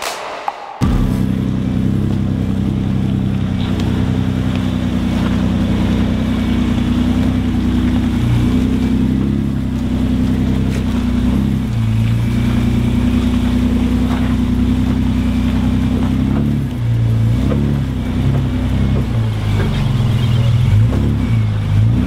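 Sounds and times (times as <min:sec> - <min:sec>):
truck engine running at low revs: 0:00.8 - 0:22.0.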